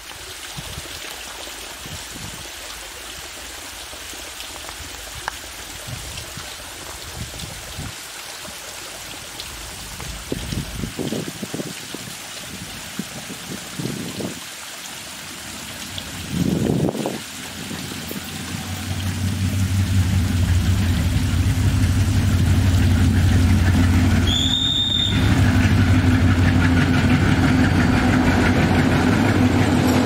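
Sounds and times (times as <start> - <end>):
waterfall rushing and splashing: 0.0 - 30.0
low rumbles: 9.4 - 11.2, 15.8 - 30.0.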